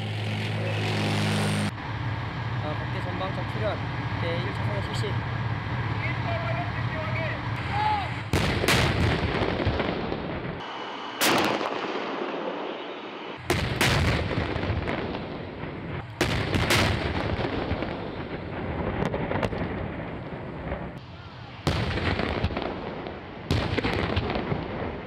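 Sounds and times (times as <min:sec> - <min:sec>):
gunshots with rolling echo: 0:08.3 - 0:21.0.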